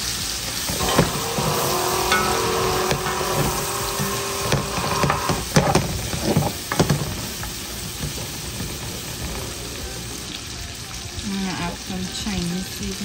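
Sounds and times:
meat sizzling in a frying pan: 0:00.0 - 0:13.0
utensil scraping a pan: 0:00.1 - 0:10.4.

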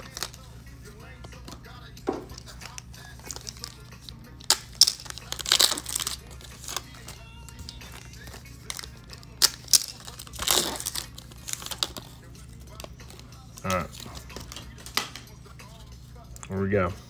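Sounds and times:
foil wrapper crinkling and tearing: 0:00.0 - 0:00.5, 0:02.4 - 0:15.1.

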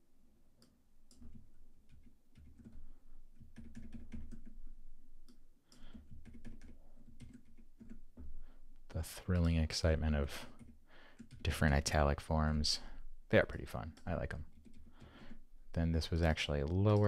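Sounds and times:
keyboard and mouse clicking: 0:00.6 - 0:02.8, 0:05.2 - 0:08.2, 0:09.3 - 0:09.8, 0:10.5 - 0:11.5.

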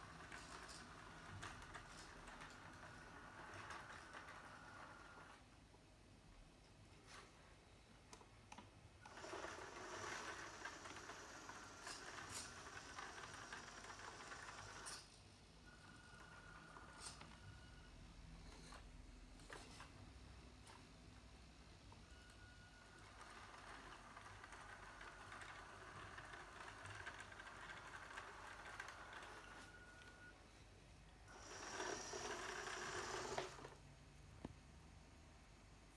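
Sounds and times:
toy tractor motor whirring: 0:00.0 - 0:05.4, 0:09.0 - 0:15.1, 0:23.0 - 0:29.7, 0:31.3 - 0:33.8.

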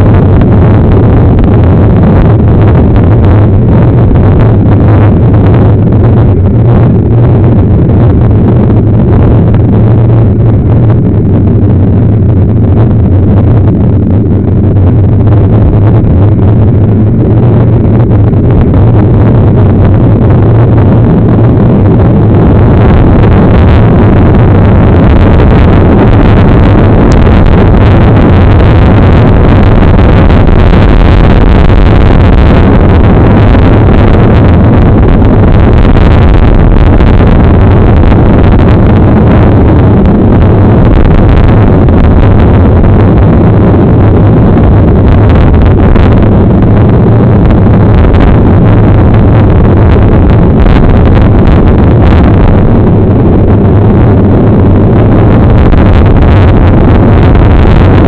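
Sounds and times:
wind and road rumble on microphone: 0:00.0 - 0:58.0.

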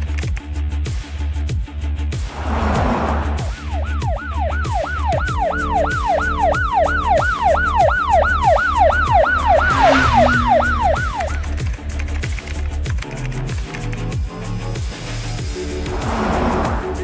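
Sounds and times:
ambulance siren yelping: 0:03.4 - 0:11.5.

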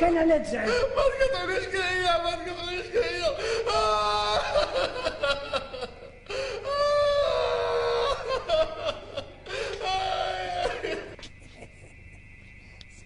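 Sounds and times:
man wailing and sobbing: 0:00.7 - 0:11.2.

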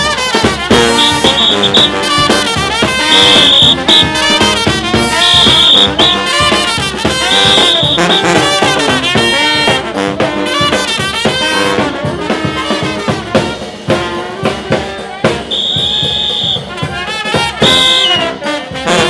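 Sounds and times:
brass band playing: 0:00.0 - 0:19.0
shrill high note blasts: 0:00.8 - 0:02.3, 0:02.9 - 0:06.6, 0:07.2 - 0:08.6, 0:15.5 - 0:16.7.

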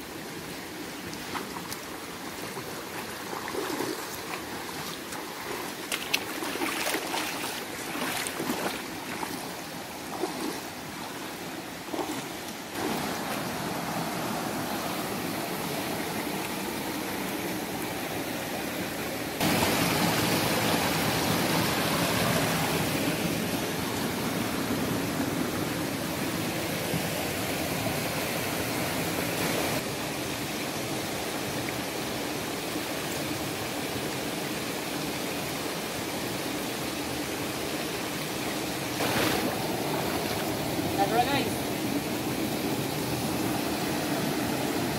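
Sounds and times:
river rushing over rocks: 0:00.0 - 0:44.9
feet splashing in water: 0:01.1 - 0:13.5, 0:39.0 - 0:40.6.

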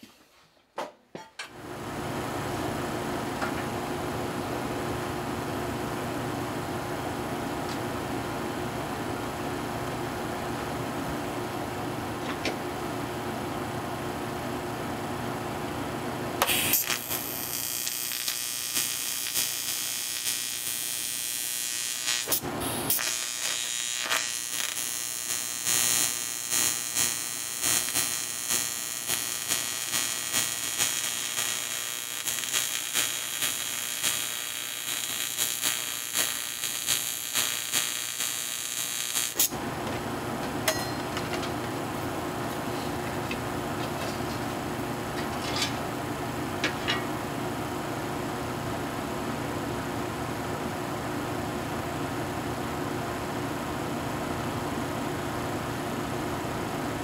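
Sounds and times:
welding arc buzzing hiss: 0:16.4 - 0:39.6.

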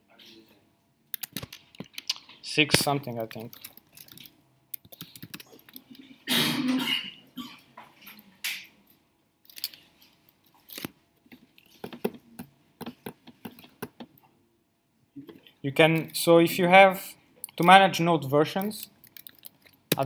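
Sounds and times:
computer keyboard keys clicking: 0:01.2 - 0:02.2, 0:03.0 - 0:06.0, 0:19.0 - 0:20.0
person coughing: 0:06.2 - 0:07.7.

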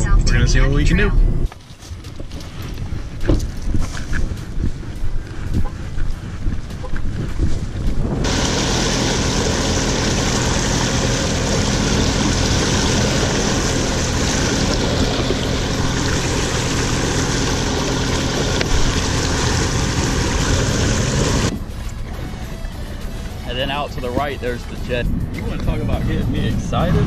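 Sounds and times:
motorboat engine running: 0:02.0 - 0:27.0
wind and water rushing: 0:06.4 - 0:21.6.

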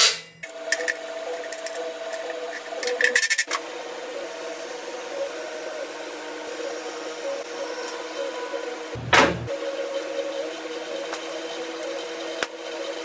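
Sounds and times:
steady mechanical hum: 0:00.0 - 0:13.0
hand tool ratchet clicks: 0:00.7 - 0:03.6.

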